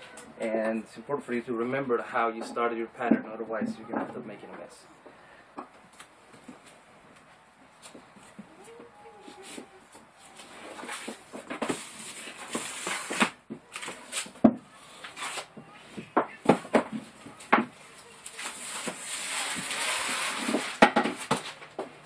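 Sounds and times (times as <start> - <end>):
rustling: 5.9 - 21.8.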